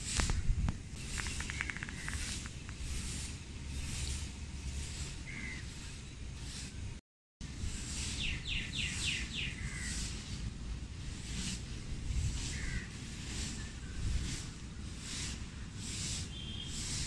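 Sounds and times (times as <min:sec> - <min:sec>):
birds calling: 0:00.2 - 0:04.2, 0:04.9 - 0:06.8, 0:08.0 - 0:10.2, 0:12.4 - 0:17.0.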